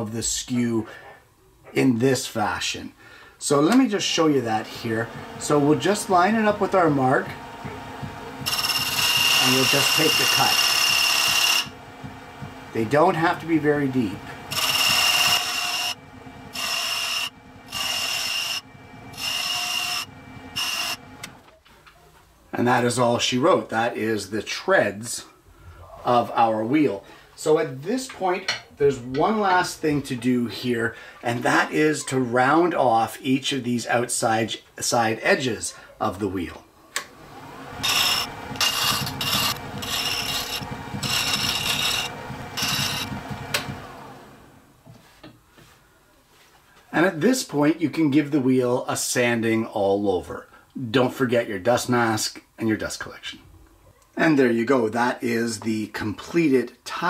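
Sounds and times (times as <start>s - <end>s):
lathe running: 4.1s - 21.4s, 37.1s - 44.7s
chisel scraping wood on lathe: 8.3s - 11.8s, 14.2s - 21.0s, 37.8s - 43.8s.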